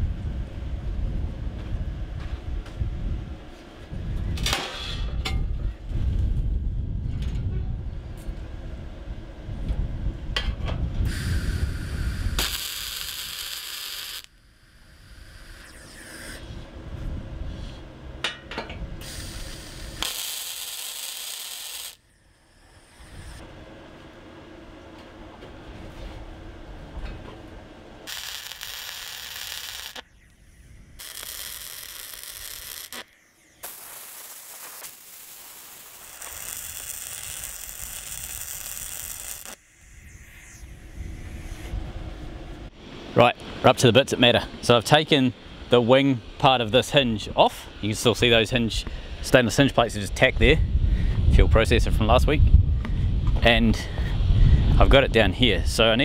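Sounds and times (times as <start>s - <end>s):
low rumble: 0.0s - 13.1s, 14.6s - 20.0s, 39.0s - 43.2s, 50.3s - 55.8s
welding arc sizzling crackle: 11.1s - 16.6s, 19.0s - 23.4s, 28.0s - 41.7s.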